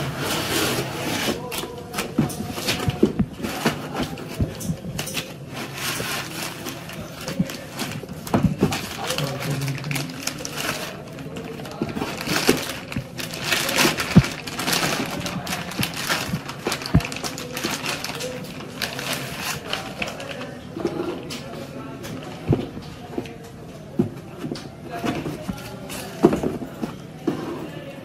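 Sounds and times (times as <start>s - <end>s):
foam blocks rubbing and squeaking: 0.0s - 20.2s
plastic bag crinkling: 0.4s - 23.4s.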